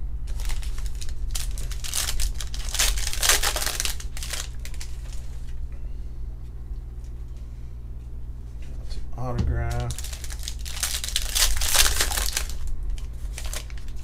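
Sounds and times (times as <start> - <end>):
foil wrapper tearing and crinkling: 0.3 - 5.6, 9.7 - 14.0
handling of cards: 0.3 - 5.6, 9.7 - 14.0.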